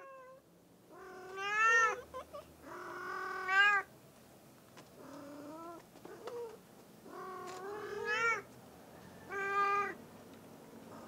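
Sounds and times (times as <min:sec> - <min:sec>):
cat meowing: 0:00.0 - 0:03.9, 0:07.1 - 0:08.4, 0:09.3 - 0:10.0.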